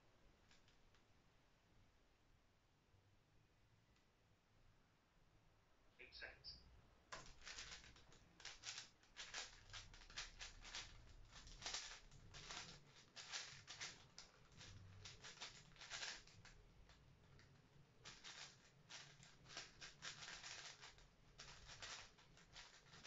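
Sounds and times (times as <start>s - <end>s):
speed cube plastic clicks: 7.1s - 23.0s.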